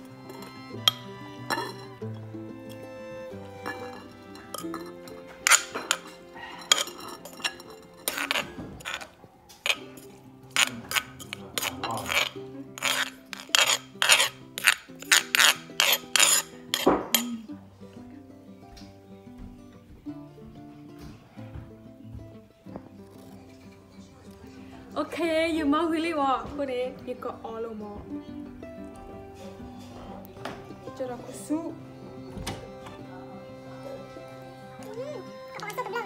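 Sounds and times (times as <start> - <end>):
metal spoon scraping clay mortar: 0.2 - 2.0, 3.6 - 17.4.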